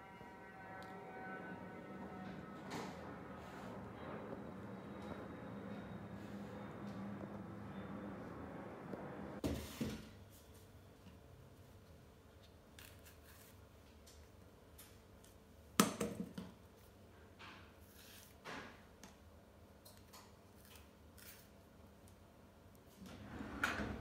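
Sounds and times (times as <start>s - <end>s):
bananas being peeled: 11.8s - 15.4s, 19.8s - 22.2s.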